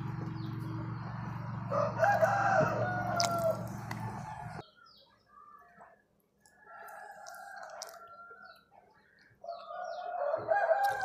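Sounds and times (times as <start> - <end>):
rooster crowing: 1.6 - 4.6, 9.7 - 11.0.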